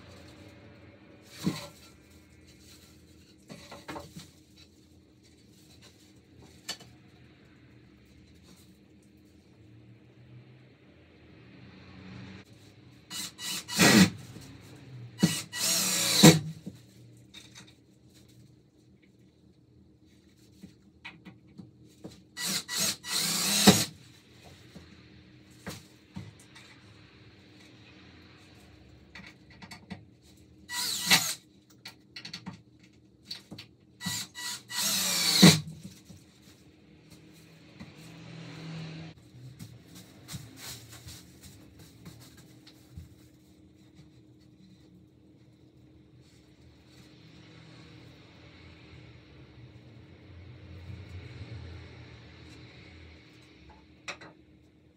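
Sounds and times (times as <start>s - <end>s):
cordless drill driving into wood: 13.2s - 14.1s, 15.2s - 16.4s, 22.4s - 23.9s, 30.7s - 31.4s, 34.0s - 35.6s.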